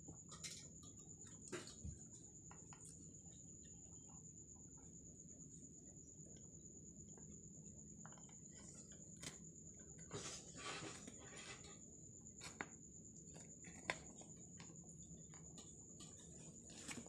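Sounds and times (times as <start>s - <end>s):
beaks tapping on food and plate: 0.1s - 4.9s, 6.3s - 10.0s.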